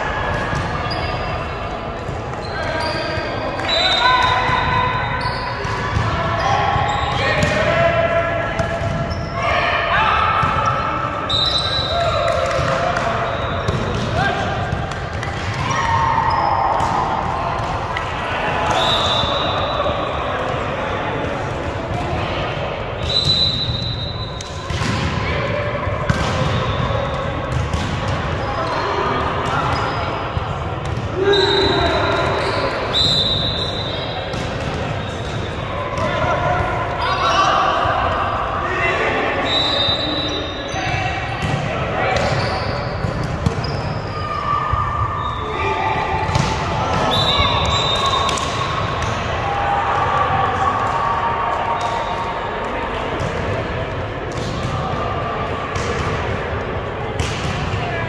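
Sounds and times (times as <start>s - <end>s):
gym hubbub: 0.0s - 58.0s
shoes squeaking on court floor: 0.5s - 1.4s, 2.3s - 5.7s, 8.8s - 9.4s, 29.6s - 30.4s, 42.2s - 44.3s
referee's whistle: 2.4s - 5.6s, 11.2s - 12.2s, 13.2s - 13.8s, 18.7s - 20.0s, 23.0s - 24.5s, 31.2s - 34.3s, 39.4s - 40.9s, 42.2s - 43.0s, 45.0s - 45.6s, 47.0s - 48.7s.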